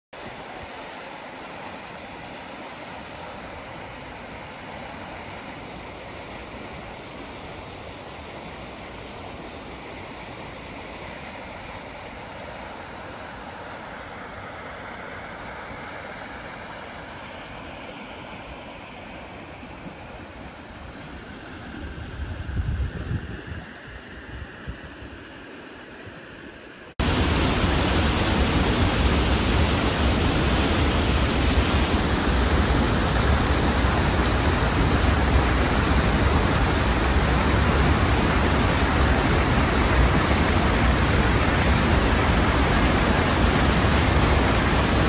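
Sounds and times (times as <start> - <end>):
stream rushing over stones: 27.0 - 45.0.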